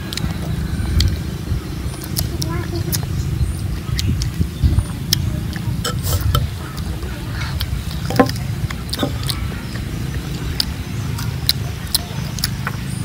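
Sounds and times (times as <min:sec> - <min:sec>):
steady low rumble: 0:00.0 - 0:13.0
biting into firm fruit: 0:05.1 - 0:06.9, 0:07.5 - 0:12.8
spoon scraping and tapping fruit: 0:08.0 - 0:09.2.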